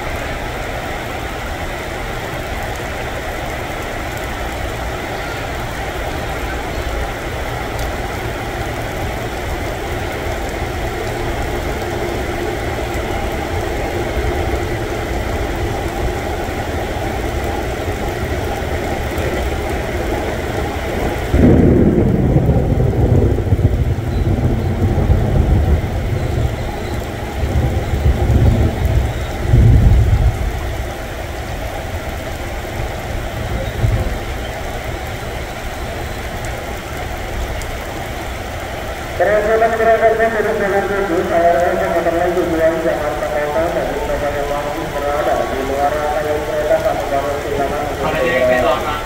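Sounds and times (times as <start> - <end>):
thunder crack and rumble: 0.0 - 38.0
heavy rain: 0.0 - 49.0.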